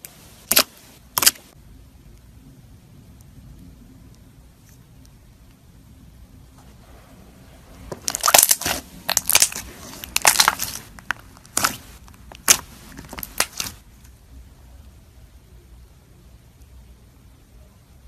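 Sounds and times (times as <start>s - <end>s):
slime popping and squelching: 0.4s - 1.6s, 7.9s - 13.9s.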